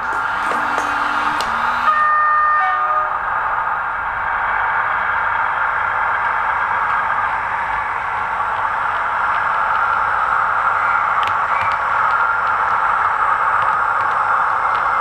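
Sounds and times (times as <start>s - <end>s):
hissy diesel engine drone: 0.0s - 15.0s
model train running: 0.0s - 15.0s.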